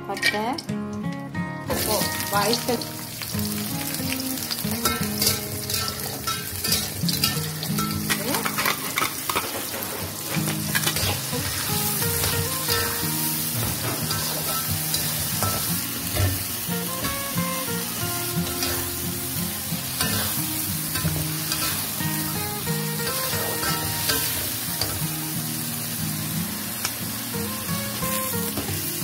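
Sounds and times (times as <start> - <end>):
background music: 0.0 - 29.0
onions sizzling in a wok: 0.1 - 29.0
metal spatula scraping a pan: 4.8 - 13.0.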